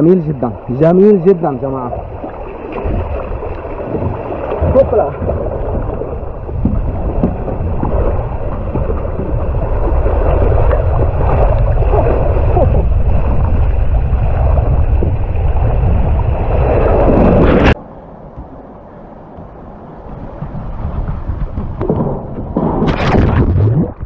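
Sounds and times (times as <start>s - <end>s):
rushing water: 0.0s - 24.0s
wind on microphone: 1.8s - 24.0s
knocks on water slide: 6.6s - 9.6s.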